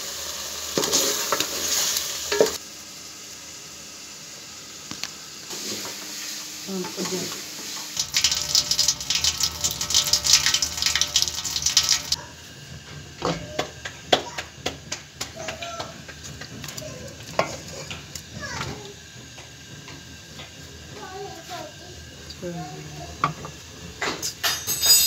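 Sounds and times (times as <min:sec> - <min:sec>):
tap water running into sink: 0:07.9 - 0:12.2.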